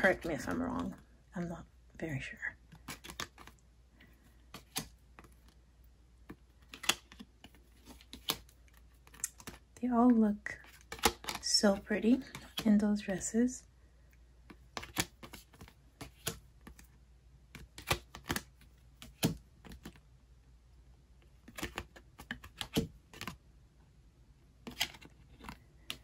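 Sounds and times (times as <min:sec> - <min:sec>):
cards clicking and tapping: 0:02.7 - 0:05.6, 0:06.2 - 0:11.4, 0:12.1 - 0:12.8, 0:14.4 - 0:16.9, 0:17.5 - 0:20.0, 0:21.4 - 0:23.4, 0:24.6 - 0:26.0.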